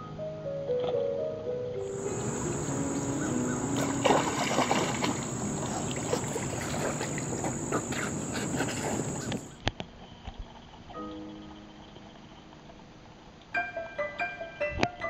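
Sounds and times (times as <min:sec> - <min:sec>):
insects droning: 0:01.8 - 0:09.6
background hiss: 0:01.8 - 0:14.6.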